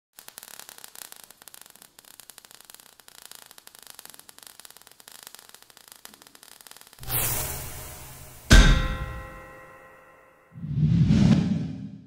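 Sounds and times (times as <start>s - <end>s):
sparks crackling and hissing: 0.1s - 9.5s.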